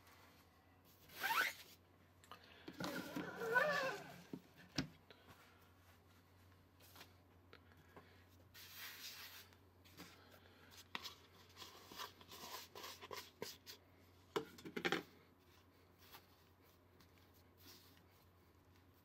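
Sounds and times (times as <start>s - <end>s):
plastic tools rubbing and scraping dough: 2.7s - 4.5s, 8.5s - 19.0s.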